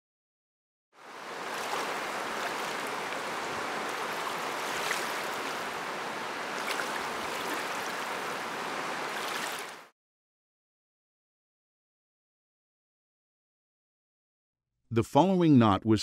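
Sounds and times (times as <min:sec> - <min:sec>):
faint water splashes: 0:01.0 - 0:09.9
river water rushing over rocks: 0:01.0 - 0:09.9.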